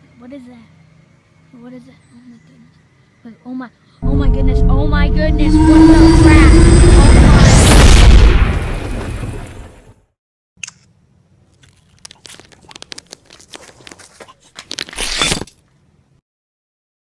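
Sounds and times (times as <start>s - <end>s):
loud rumble: 4.0s - 9.8s
gravel crunching: 11.4s - 15.8s.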